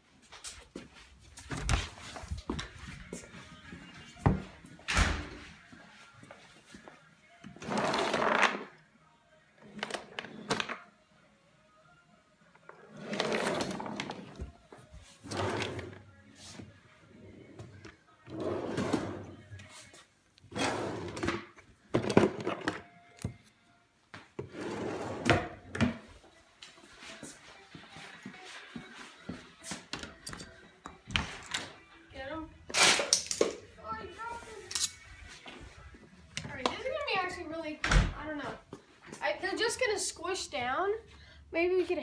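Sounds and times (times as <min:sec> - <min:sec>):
wooden drawers sliding: 0:15.2 - 0:16.0, 0:18.3 - 0:19.3, 0:24.5 - 0:25.5.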